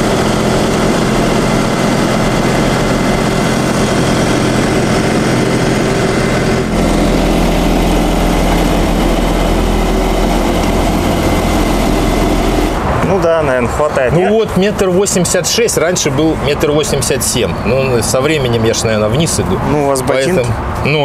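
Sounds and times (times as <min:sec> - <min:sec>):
sprayer engine running: 0:00.0 - 0:13.0.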